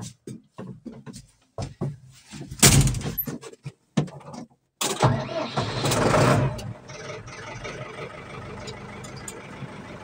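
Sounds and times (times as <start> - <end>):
knocks and clicks in tractor cab: 0.0 - 5.0.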